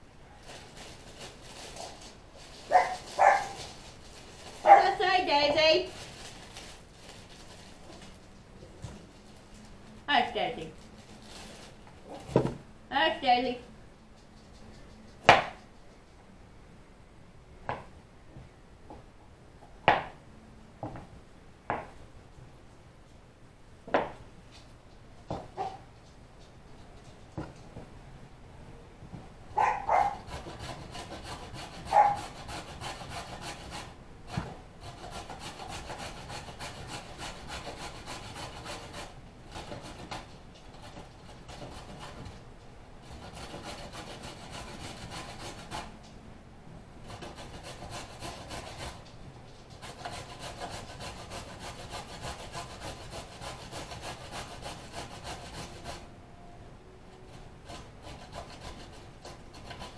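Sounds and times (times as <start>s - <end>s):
vegetables rasping on grater: 29.6s - 42.4s, 57.7s - 59.9s.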